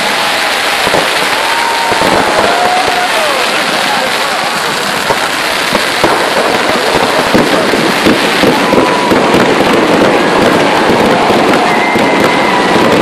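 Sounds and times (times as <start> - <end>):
high firework whistle: 0.0 - 3.5, 8.0 - 13.0
fireworks crackling and popping: 0.0 - 13.0.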